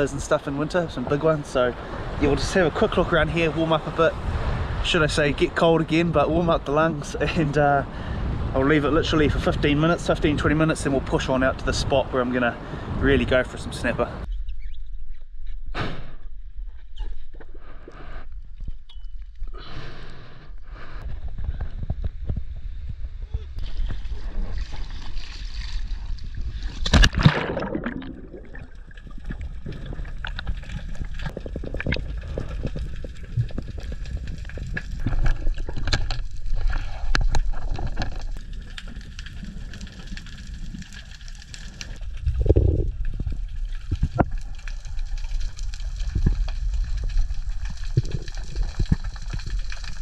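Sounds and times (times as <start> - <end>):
splash into water: 23.6 - 29.9
underwater sloshing and gurgling: 23.6 - 50.0
sharp clicks and crackles: 29.0 - 50.0.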